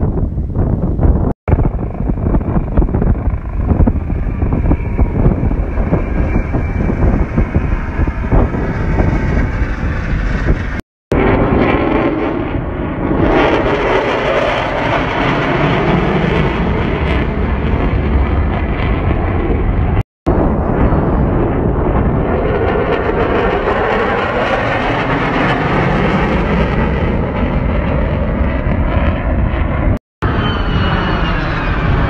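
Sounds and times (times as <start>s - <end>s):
helicopter flying low: 0.0s - 32.0s
wind buffeting microphone: 0.0s - 32.0s
plane engine passing: 1.5s - 32.0s.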